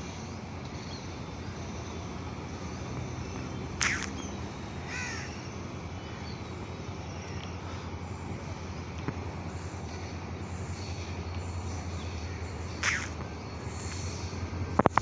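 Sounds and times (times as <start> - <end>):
low background noise: 0.0 - 15.0
crow cawing: 4.8 - 5.5, 12.3 - 13.2.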